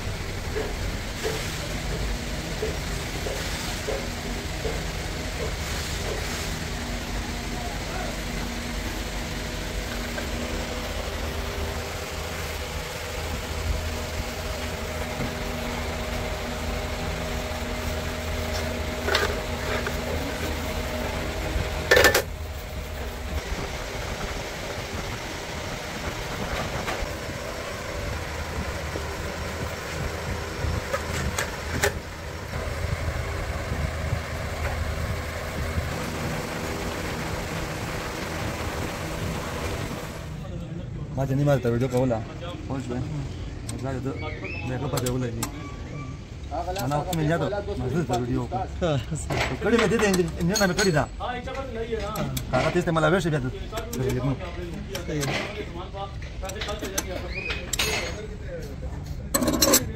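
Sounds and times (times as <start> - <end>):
mechanical drone: 0.0 - 40.6.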